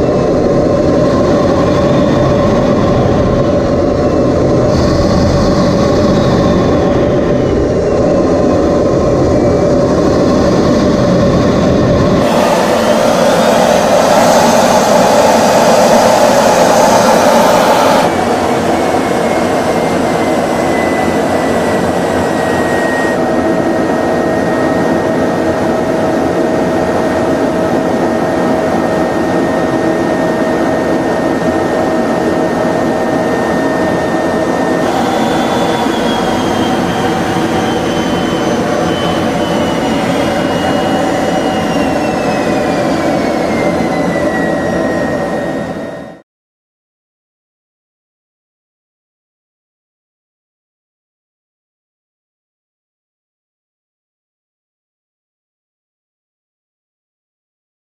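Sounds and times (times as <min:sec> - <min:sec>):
rushing air: 0:00.0 - 0:24.1, 0:34.5 - 0:44.0
jet engine whine in cockpit: 0:00.0 - 0:46.2.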